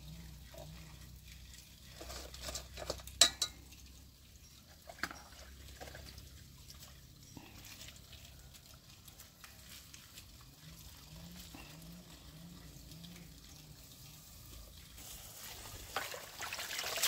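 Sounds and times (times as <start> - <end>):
clinks at a cooking pot: 2.4 - 5.8.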